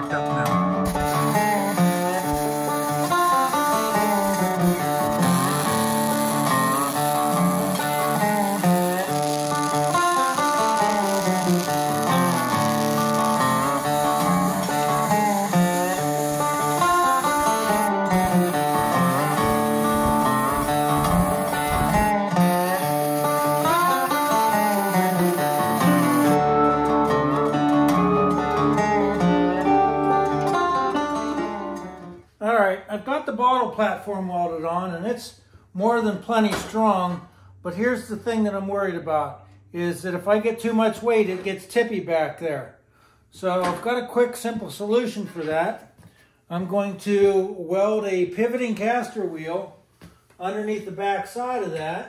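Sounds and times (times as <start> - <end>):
instrumental guitar music: 0.0 - 32.3.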